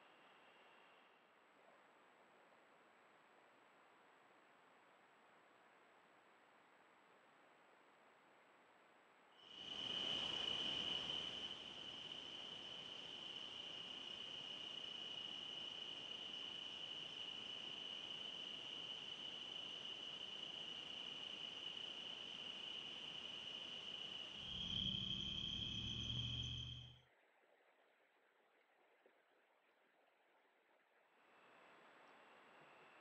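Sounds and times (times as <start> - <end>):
crickets chirping: 9.4 - 27.0
low rumble: 24.4 - 27.0.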